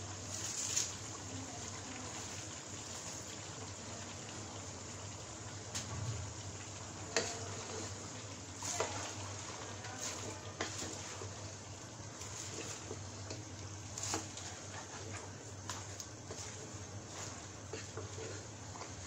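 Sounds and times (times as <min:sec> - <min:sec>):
low hum and hiss: 0:00.0 - 0:19.0
spatula scraping cabbage in pot: 0:08.6 - 0:11.6, 0:12.2 - 0:19.0.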